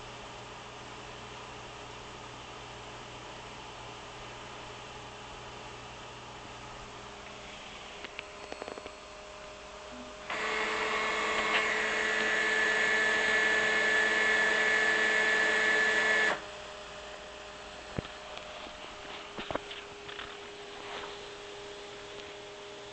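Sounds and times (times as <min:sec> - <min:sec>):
stepper motors whining: 0:10.3 - 0:16.4.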